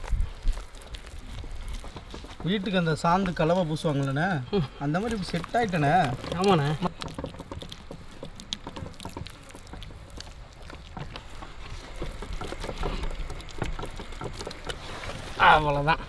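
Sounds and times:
hands patting wet paste: 0.0s - 16.0s.

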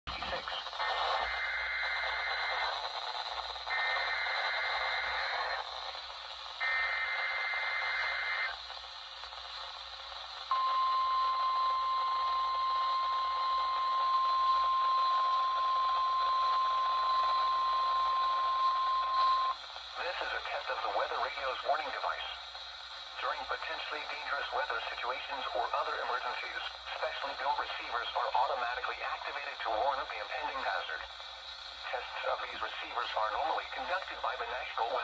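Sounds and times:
radio hiss: 0.1s - 35.0s
buzzy digital data screech: 0.8s - 2.8s, 3.7s - 5.6s, 6.6s - 8.5s
steady high alarm tone: 1.2s - 2.8s, 3.7s - 5.6s, 6.6s - 8.6s, 10.5s - 19.6s.

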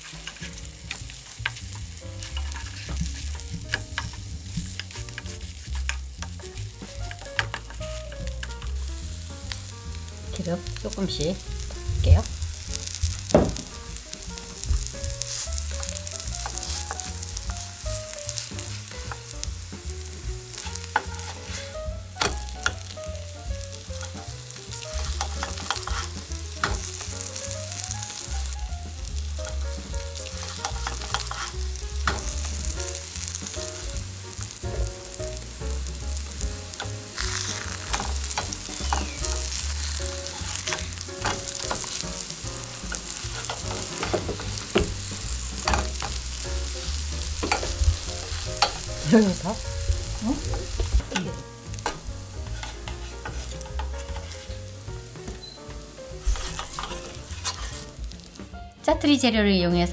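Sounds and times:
wooden spatula scraping and tapping pan: 0.0s - 8.9s, 20.2s - 23.0s, 24.8s - 27.3s, 28.0s - 34.9s, 35.8s - 58.4s
pancakes sizzling in oil: 0.0s - 58.6s.

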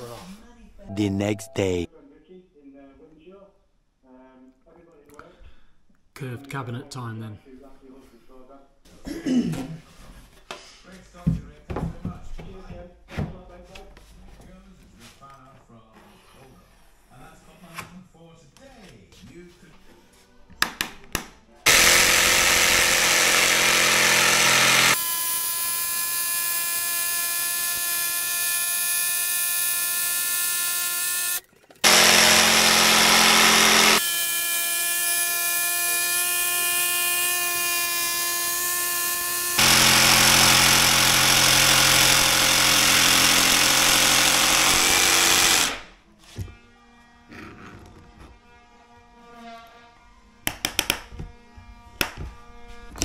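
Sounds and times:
jigsaw cutting board: 21.7s - 45.9s.

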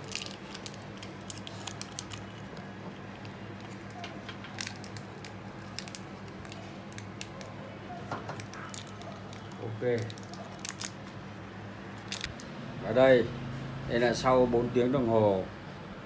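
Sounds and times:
small clicks and crackles: 0.0s - 11.2s, 12.0s - 12.5s.

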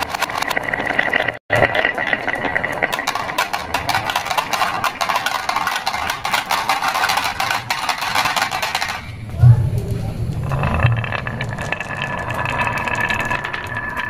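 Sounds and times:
marbles dropping into plastic truck: 0.0s - 9.2s, 10.4s - 14.0s
marbles clacking down wooden track: 0.0s - 14.0s.

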